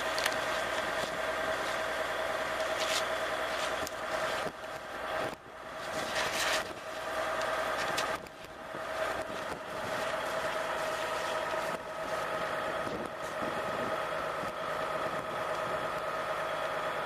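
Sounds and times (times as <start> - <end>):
water spraying from hose: 0.0 - 14.5
fire engine pump running: 0.0 - 17.0.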